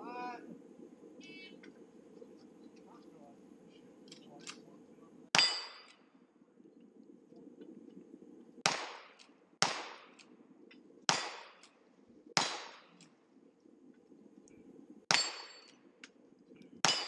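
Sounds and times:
gunshots with short echo: 8.6 - 10.2, 11.1 - 11.7, 12.4 - 13.0.

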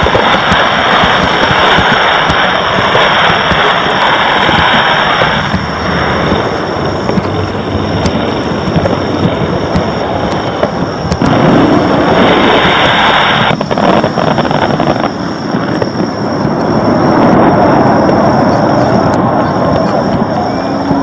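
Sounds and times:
fireworks bangs and crackles: 0.0 - 21.0.

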